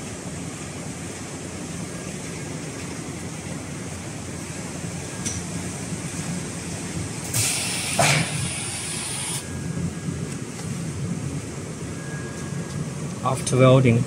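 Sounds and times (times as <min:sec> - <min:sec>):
compressed air hiss: 0:07.2 - 0:09.4
machine clunk: 0:07.9 - 0:08.5.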